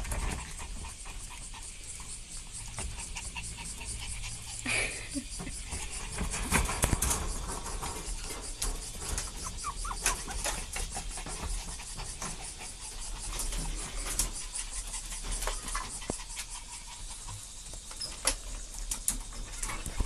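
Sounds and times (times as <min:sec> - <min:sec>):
puppies squeaking: 0:05.6 - 0:11.5
claws rattling on wire mesh: 0:05.6 - 0:16.6.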